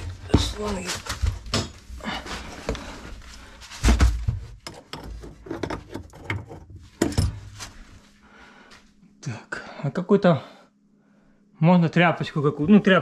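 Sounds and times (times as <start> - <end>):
hard objects knocking and rattling: 0.0 - 3.0, 3.8 - 7.6.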